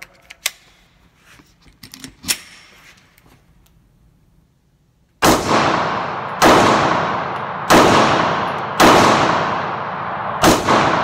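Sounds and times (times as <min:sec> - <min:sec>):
pistol shots echoing indoors: 0:05.2 - 0:11.0.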